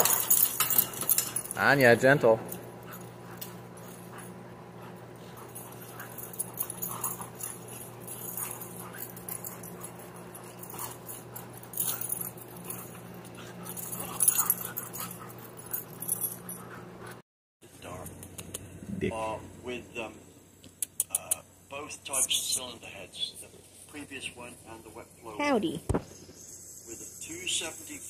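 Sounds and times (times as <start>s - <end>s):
dogs play-wrestling noises: 0.0s - 1.7s, 2.4s - 17.2s
steady low hum: 0.0s - 25.4s.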